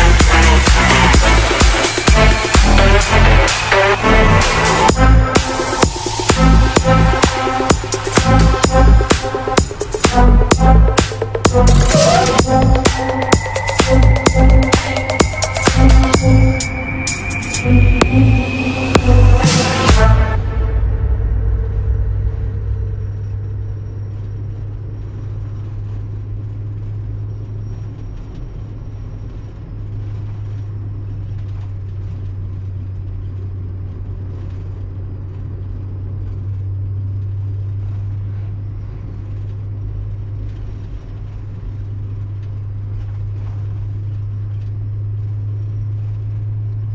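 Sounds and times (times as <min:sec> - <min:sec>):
car engine and tyres drone: 0:00.0 - 0:46.9.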